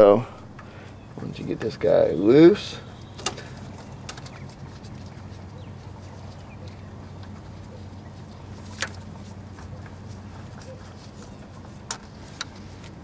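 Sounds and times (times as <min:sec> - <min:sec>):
sharp click: 0:03.2 - 0:04.3
hands handling engine parts: 0:03.2 - 0:04.9, 0:08.6 - 0:13.0.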